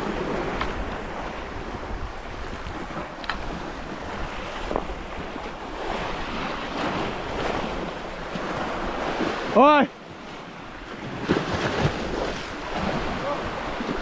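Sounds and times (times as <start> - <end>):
wind buffeting microphone: 0.0 - 9.6
sea waves breaking over rocks: 0.0 - 14.0.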